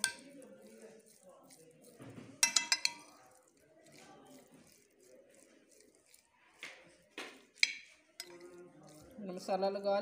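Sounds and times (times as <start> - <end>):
metal spoon clinking glass bowl: 0.0 - 4.8, 7.4 - 9.5
stirring chicken pieces: 0.0 - 10.0.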